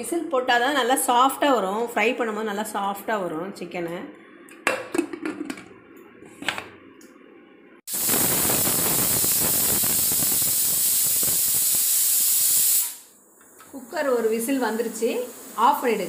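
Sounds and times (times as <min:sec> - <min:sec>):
pressure cooker steam hiss: 0:07.9 - 0:16.0.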